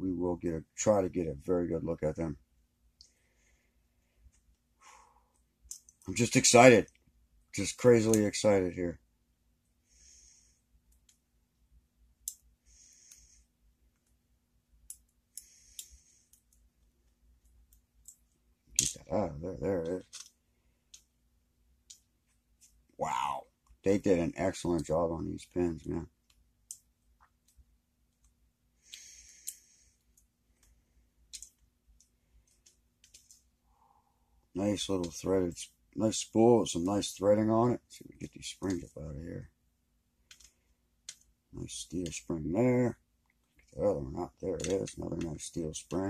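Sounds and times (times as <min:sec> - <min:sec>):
small metal clicks: 0:05.6 - 0:06.1, 0:12.2 - 0:12.5, 0:14.8 - 0:19.1, 0:19.8 - 0:21.1, 0:26.2 - 0:33.5, 0:40.2 - 0:41.3, 0:44.6 - 0:45.4
metal clicks: 0:19.8 - 0:21.1, 0:31.3 - 0:33.4.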